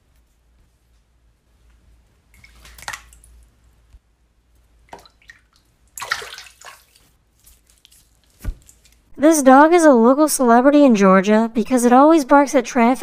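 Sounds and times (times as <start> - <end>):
water drips: 2.3 - 3.5, 4.9 - 7.1
water splashes: 2.4 - 3.4, 4.9 - 7.2.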